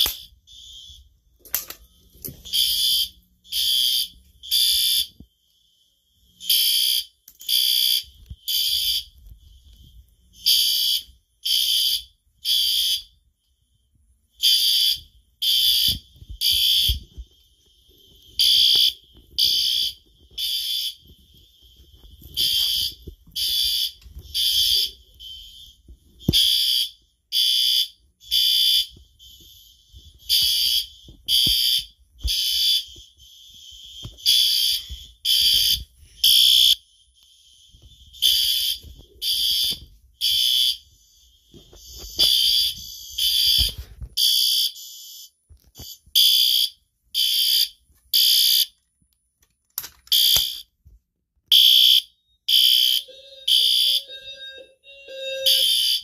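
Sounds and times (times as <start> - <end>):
fire alarm horn blasts: 2.0 - 5.2, 18.0 - 48.7, 51.5 - 56.0.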